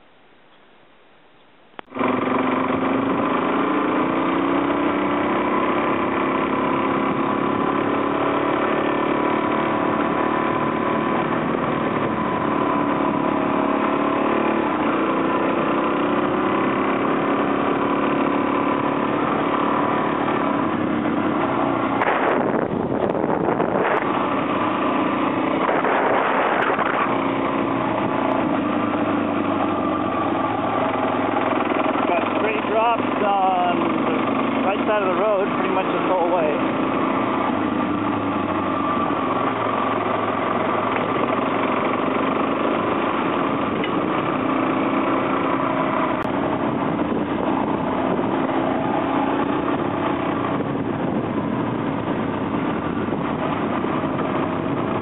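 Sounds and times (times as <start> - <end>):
motorcycle engine running: 1.8 - 55.0
wind noise: 8.8 - 14.8, 18.1 - 55.0.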